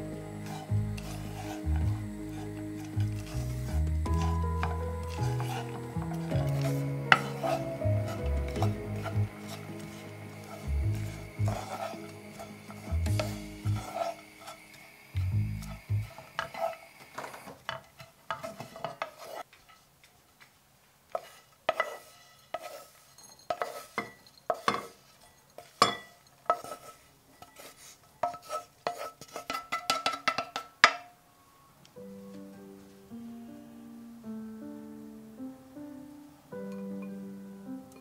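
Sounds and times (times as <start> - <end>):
background music: 0.0 - 16.1, 32.0 - 38.0.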